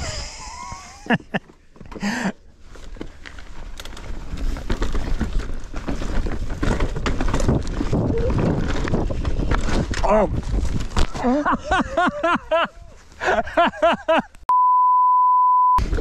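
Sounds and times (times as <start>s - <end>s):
bicycle tyre noise: 2.0s - 11.2s
wind on the microphone: 7.3s - 11.0s.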